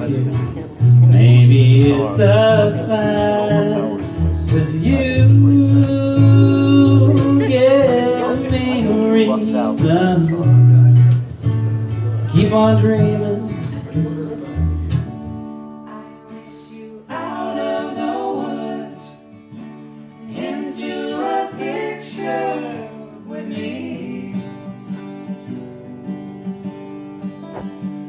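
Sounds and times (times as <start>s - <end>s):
acoustic guitars playing: 0.0s - 28.0s
person singing: 1.0s - 10.7s.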